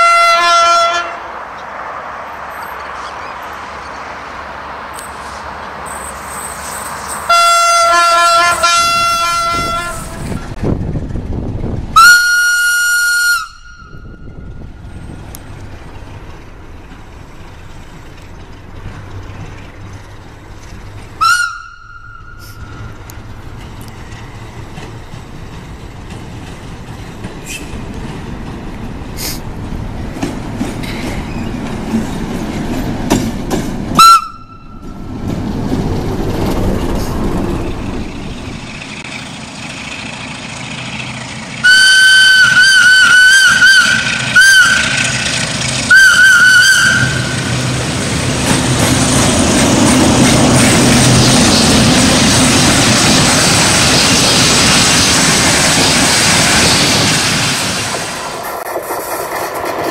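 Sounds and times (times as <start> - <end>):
train horn blasts: 0.0 - 1.3, 7.3 - 10.3, 12.0 - 14.6, 21.2 - 22.7, 34.0 - 34.9, 41.6 - 45.2, 45.9 - 47.5
diesel locomotive engine: 0.0 - 59.9
train rolling noise: 0.0 - 59.9.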